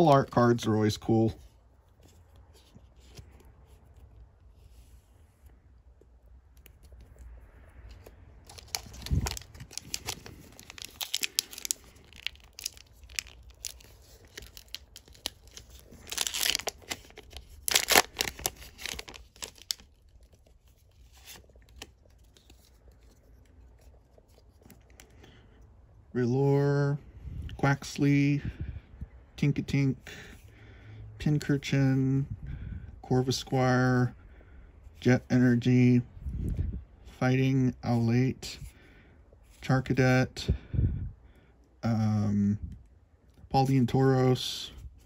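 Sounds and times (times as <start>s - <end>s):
foil wrapper crinkling and tearing: 8.4s - 22.8s.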